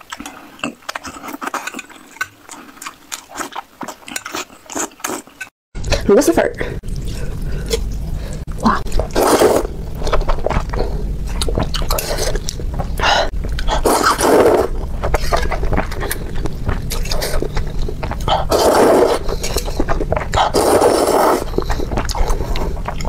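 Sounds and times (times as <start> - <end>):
chewing: 0.0 - 6.1, 6.8 - 23.0
slurping noodles: 6.9 - 23.0.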